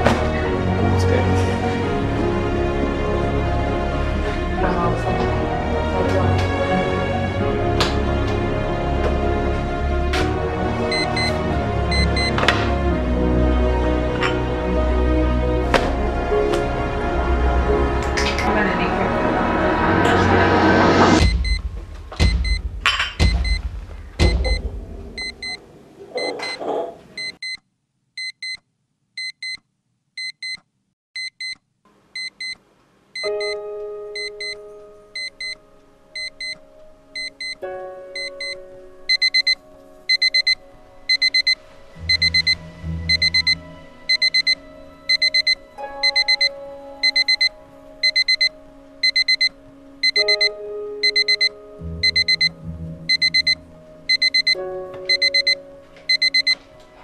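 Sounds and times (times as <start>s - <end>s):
music with slow held chords: 0.0s - 25.6s, 33.2s - 57.0s
alarm clock beeping: 10.9s - 12.4s, 21.1s - 23.6s, 24.2s - 24.6s, 25.2s - 25.6s, 26.2s - 26.6s, 27.2s - 27.6s, 28.2s - 28.6s, 29.2s - 29.6s, 30.2s - 30.6s, 31.2s - 31.6s, 32.2s - 32.6s, 33.2s - 33.6s, 34.2s - 34.6s, 35.2s - 35.6s, 36.2s - 36.6s, 37.2s - 37.6s, 38.2s - 56.6s.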